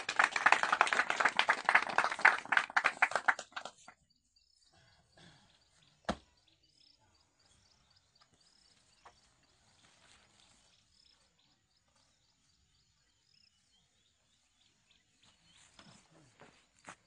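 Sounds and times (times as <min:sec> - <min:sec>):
small group clapping: 0:00.0 - 0:04.0.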